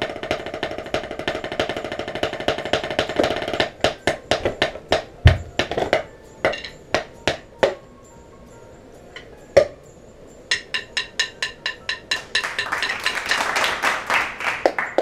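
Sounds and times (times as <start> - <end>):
drumsticks on practice pad: 10.5 - 13.3.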